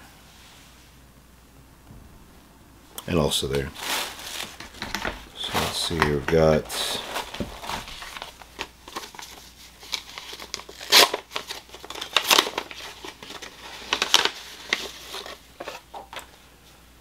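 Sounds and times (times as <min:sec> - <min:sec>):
packaging crinkling: 0:03.5 - 0:16.3.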